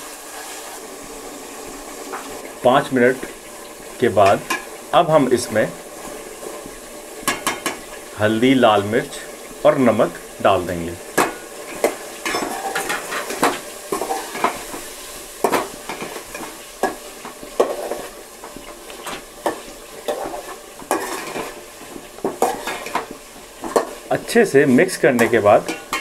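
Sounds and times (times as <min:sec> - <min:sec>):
chicken sizzling in oil: 0:00.0 - 0:26.0
metal ladle scraping a pot: 0:11.2 - 0:14.8, 0:15.4 - 0:24.1, 0:25.2 - 0:26.0.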